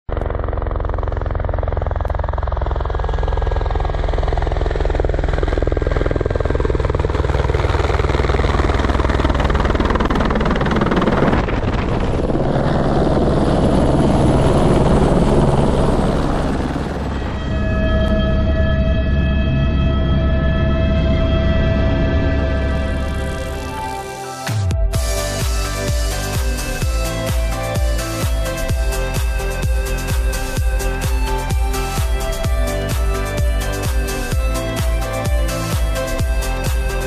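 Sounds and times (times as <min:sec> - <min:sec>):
helicopter hovering: 0:00.1 - 0:37.0
background music: 0:13.7 - 0:37.0.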